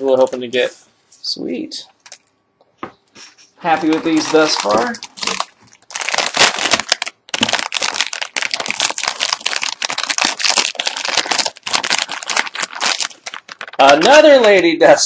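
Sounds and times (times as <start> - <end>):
foil pack crinkling and tearing: 3.7 - 14.3.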